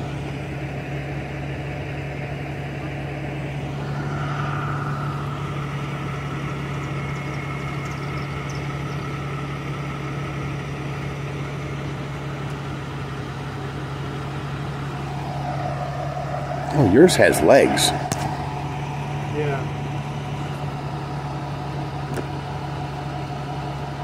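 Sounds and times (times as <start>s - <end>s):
vehicle engine idling: 0.0s - 24.0s
faint high whine: 3.0s - 9.4s, 14.4s - 20.7s.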